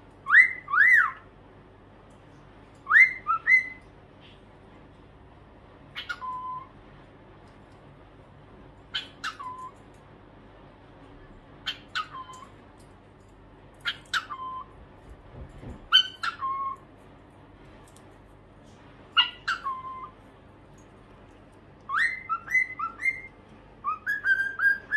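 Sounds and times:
cockatiel calls: 0.2s - 1.2s, 2.8s - 3.8s, 5.9s - 6.7s, 8.9s - 9.8s, 11.6s - 12.5s, 13.8s - 14.7s, 15.9s - 16.8s, 19.1s - 20.2s, 21.9s - 24.9s.

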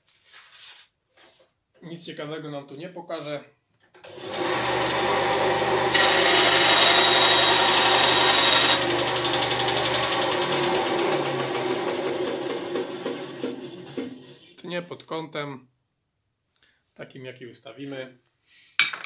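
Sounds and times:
band saw running: 4.0s - 14.4s
saw blade cutting wood: 4.0s - 14.4s.

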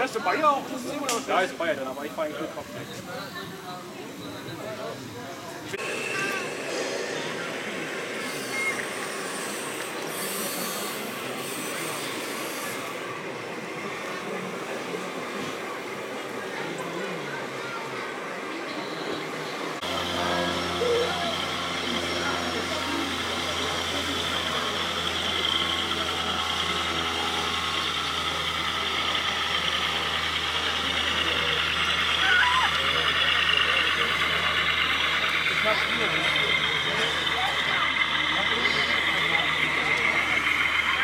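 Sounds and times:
model truck mechanical running noise: 0.0s - 41.0s
high whine: 5.8s - 16.0s, 19.1s - 41.0s.

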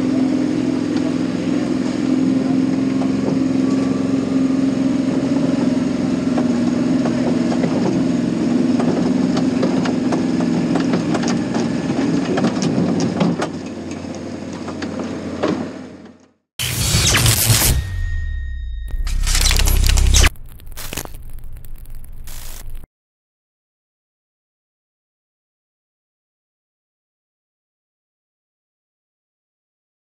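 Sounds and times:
engine running: 0.0s - 22.8s.

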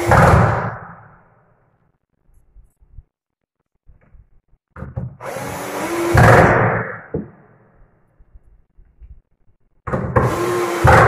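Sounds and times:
cordless drill driving screws: 5.2s - 6.5s, 10.2s - 11.0s.

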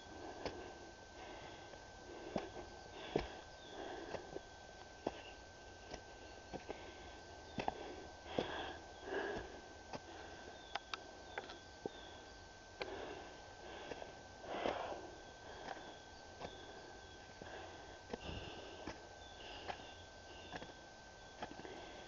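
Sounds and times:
person breathing loudly: 0.0s - 4.4s, 6.6s - 10.6s, 12.8s - 15.9s, 17.3s - 20.6s, 21.5s - 22.0s
footsteps crunching on snowy trail: 0.0s - 10.6s.

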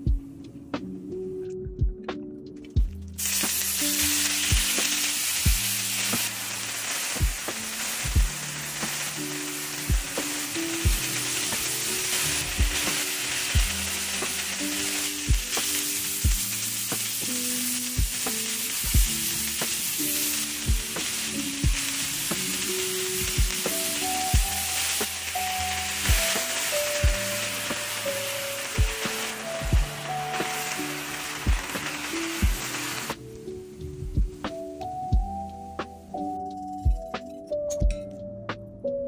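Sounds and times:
background music with low beat: 0.0s - 6.4s, 7.1s - 9.0s, 9.7s - 14.6s, 15.2s - 39.0s
food sizzling in hot oil: 3.2s - 33.4s.

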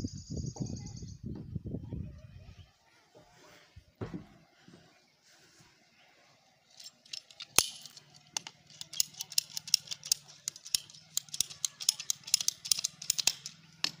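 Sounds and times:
ratcheting pipe cutter clicking: 6.8s - 14.0s.

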